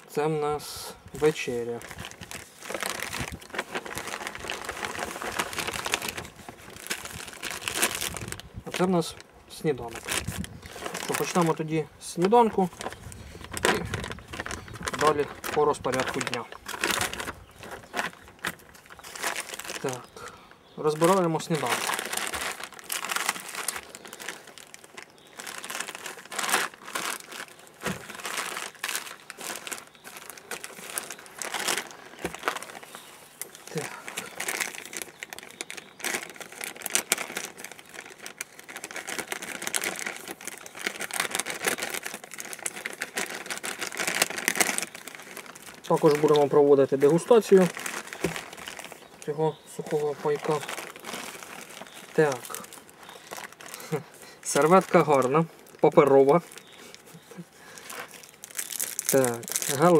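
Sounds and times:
plastic bags crinkling: 0:00.0 - 0:59.9.

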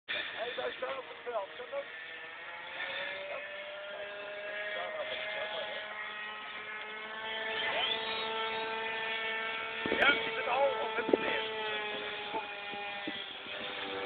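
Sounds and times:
model aircraft motor buzzing whine: 0:00.1 - 0:14.0.

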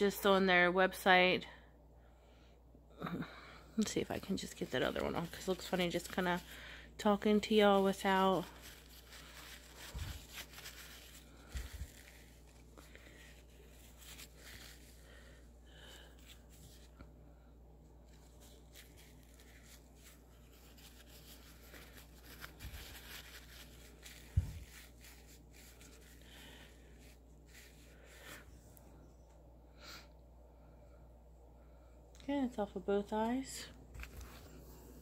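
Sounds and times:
paper towel rustling on skin: 0:03.8 - 0:29.1, 0:33.8 - 0:35.0.

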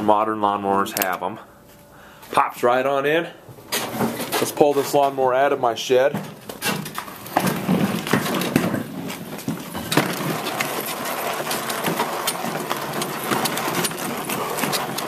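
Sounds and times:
lawn mower wheels rattling on pavers: 0:03.7 - 0:15.0.

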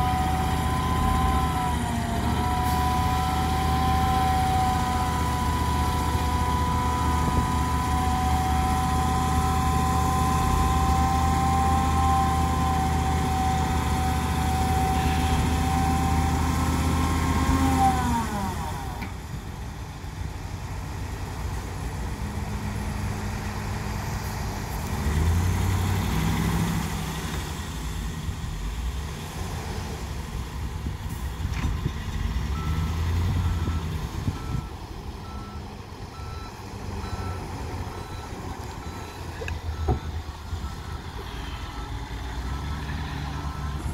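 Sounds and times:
truck engine revving: 0:00.0 - 0:19.0, 0:22.1 - 0:43.9
reversing alarm beeping: 0:32.5 - 0:43.9.

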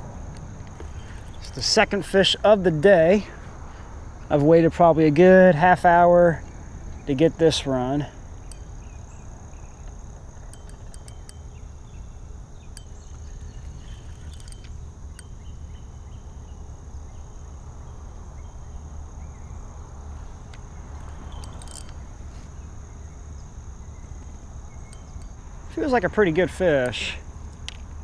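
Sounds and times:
insects buzzing: 0:00.0 - 0:28.0
fishing reel clicks: 0:10.4 - 0:11.5, 0:12.7 - 0:15.3, 0:21.0 - 0:22.0.

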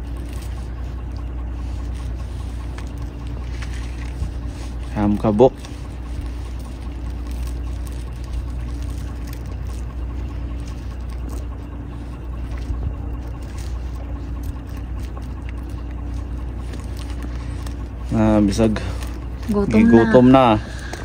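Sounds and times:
faint droning tone: 0:00.0 - 0:21.0
motor humming: 0:00.0 - 0:21.0.

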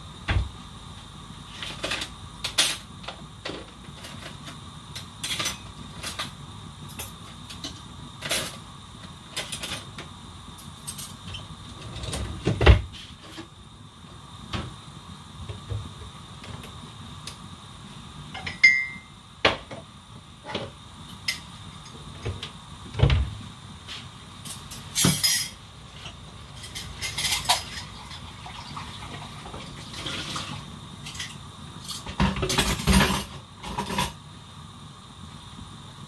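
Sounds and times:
water rushing from tap: 0:27.8 - 0:30.6.

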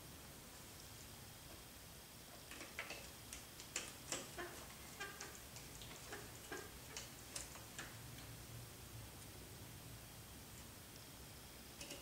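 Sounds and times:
light clicks of small parts: 0:05.2 - 0:08.3.

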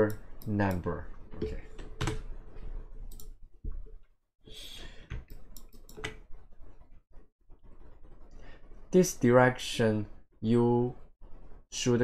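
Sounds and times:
computer mouse clicking: 0:03.1 - 0:03.4, 0:05.1 - 0:06.2.

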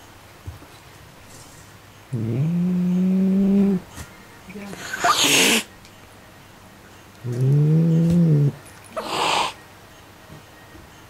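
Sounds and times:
cat growling low: 0:02.1 - 0:03.9, 0:07.2 - 0:09.6
cat hissing: 0:04.8 - 0:05.7, 0:07.3 - 0:09.6.

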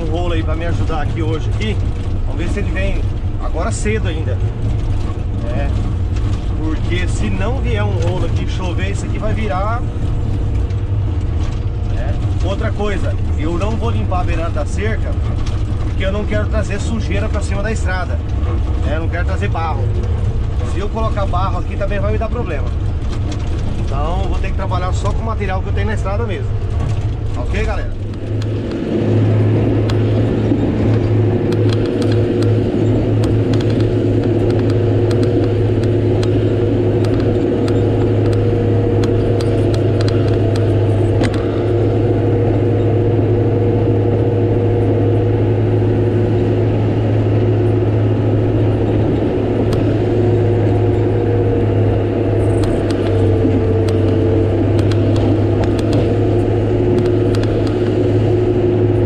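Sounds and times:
light clicks and rattles: 0:00.0 - 0:29.0, 0:29.8 - 0:42.0
diesel engine running: 0:00.0 - 0:59.0.

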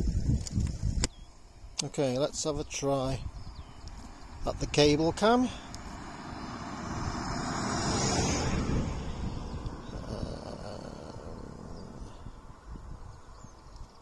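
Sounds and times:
road vehicle passing by: 0:04.0 - 0:13.4.

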